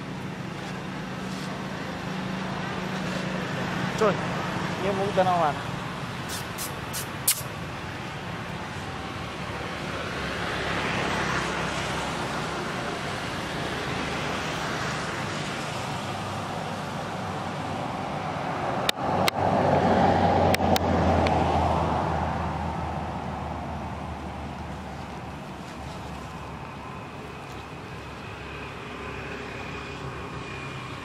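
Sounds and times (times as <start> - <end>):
vehicle passing: 0.0 - 31.0
sharp clicks: 6.3 - 7.5.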